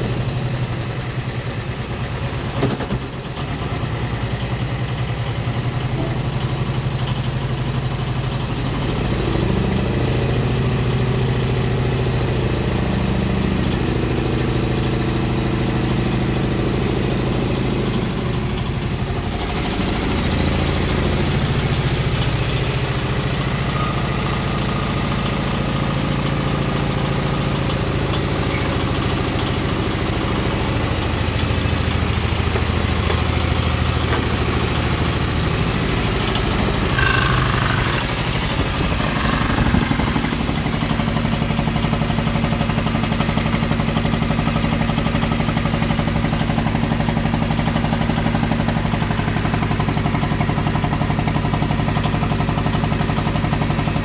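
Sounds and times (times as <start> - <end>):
boat engine droning: 19.9 - 41.8.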